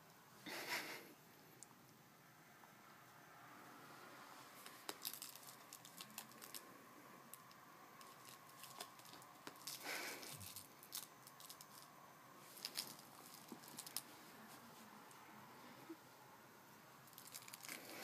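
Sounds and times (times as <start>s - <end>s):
cat clawing and biting plush toy: 7.3s - 11.8s.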